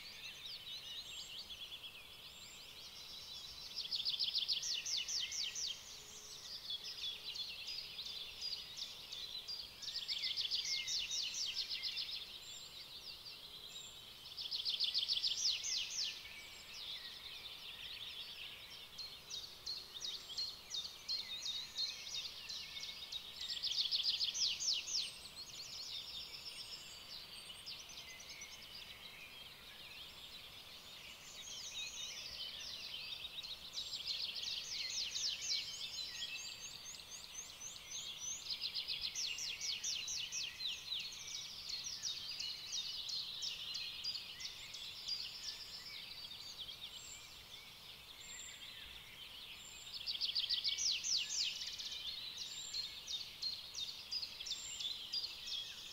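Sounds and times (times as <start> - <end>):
small birds chirping and trilling: 0.0 - 55.9.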